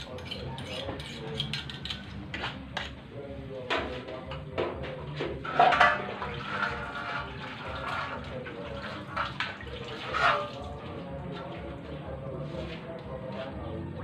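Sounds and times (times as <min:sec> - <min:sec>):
water splashing in metal can: 0:05.4 - 0:11.5.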